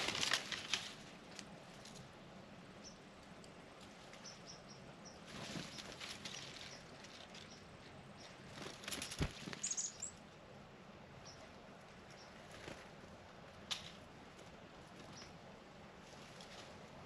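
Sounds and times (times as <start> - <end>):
bird wings fluttering: 0.0 - 2.0, 5.2 - 7.5, 8.4 - 10.0, 12.4 - 14.0
high bird chirps: 9.1 - 10.2.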